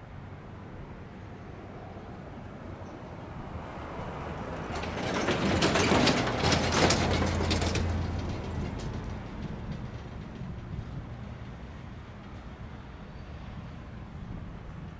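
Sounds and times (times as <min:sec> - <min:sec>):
wheels knocking over railroad tracks: 0:04.1 - 0:12.6.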